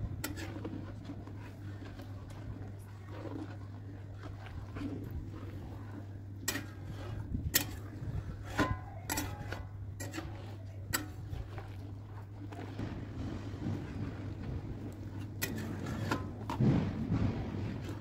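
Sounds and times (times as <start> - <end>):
steady low hum: 0.0 - 18.0
metal spatula scraping pan: 0.2 - 0.9, 6.4 - 12.3, 15.2 - 16.6.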